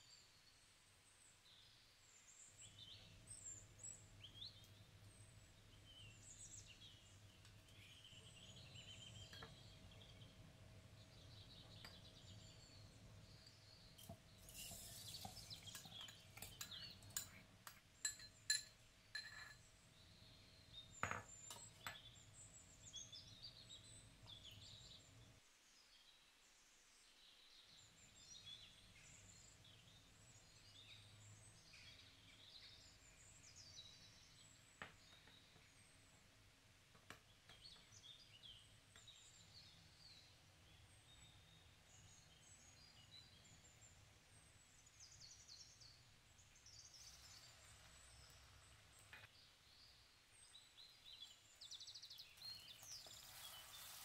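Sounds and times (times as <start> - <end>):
faint birds chirping: 0.0 - 54.0
metal spoon clinking glass jar: 14.4 - 19.6.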